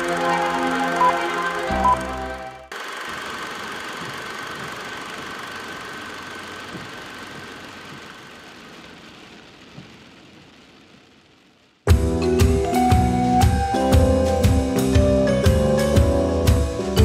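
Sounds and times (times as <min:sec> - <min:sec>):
car engine idling: 0:00.0 - 0:16.4.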